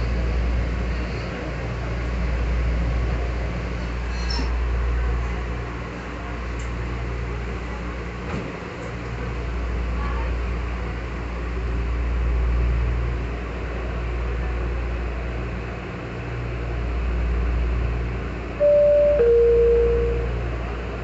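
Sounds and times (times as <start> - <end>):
low hum inside train car: 0.0 - 21.0
two-tone door chime: 18.6 - 20.4.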